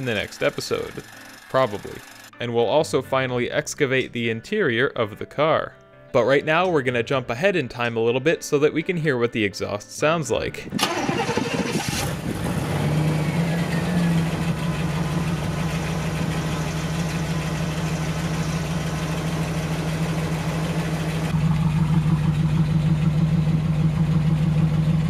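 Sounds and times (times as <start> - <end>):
car engine idling: 10.8 - 25.0.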